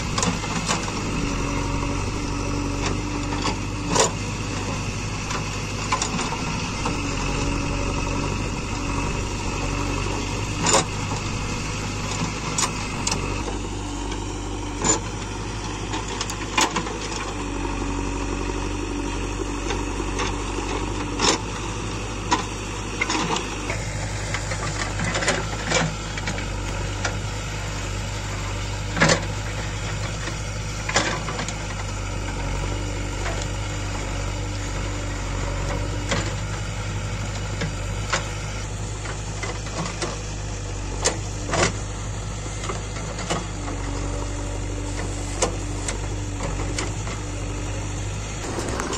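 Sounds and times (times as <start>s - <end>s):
diesel engine running: 0.0s - 48.9s
metal clanks of digger bucket: 48.3s - 48.9s.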